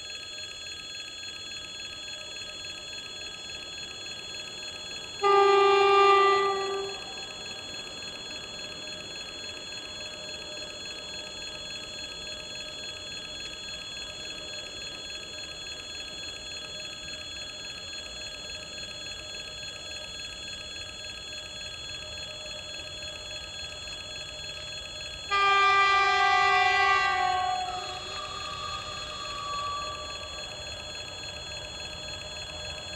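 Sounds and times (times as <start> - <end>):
train horn blasts: 5.2 - 7.2, 25.3 - 30.5.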